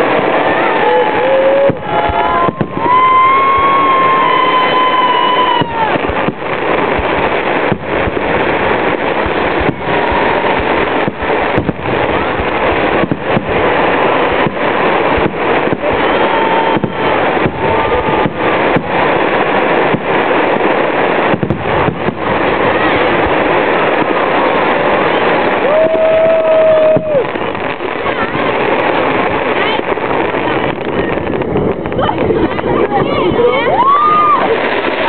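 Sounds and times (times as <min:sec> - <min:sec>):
fireworks bangs and crackle: 0:00.0 - 0:35.0.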